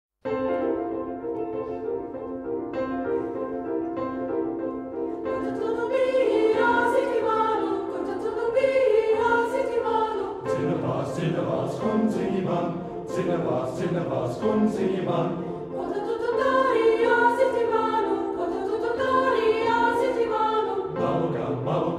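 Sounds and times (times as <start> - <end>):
choir singing: 5.0 - 21.9.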